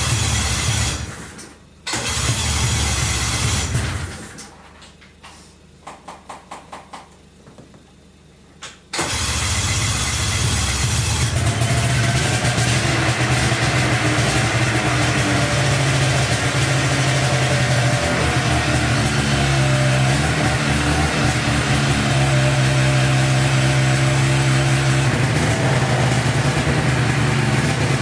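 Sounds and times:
snowmobile engine cranking: 9.0 - 28.0
snowmobile engine running: 9.9 - 28.0.

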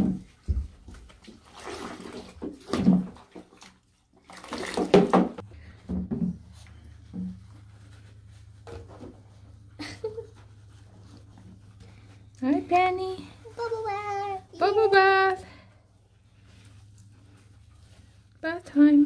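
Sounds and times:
water splashing: 1.1 - 5.4.

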